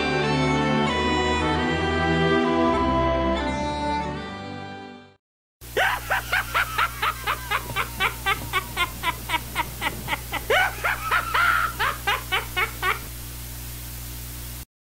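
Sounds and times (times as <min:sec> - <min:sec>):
steady low hum: 0:05.6 - 0:14.6
high-pitched rhythmic laughter: 0:05.8 - 0:13.1.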